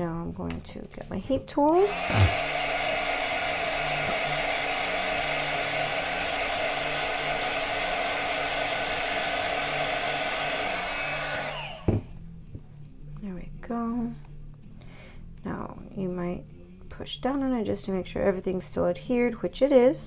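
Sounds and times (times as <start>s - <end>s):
heat gun blowing: 1.7s - 12.1s.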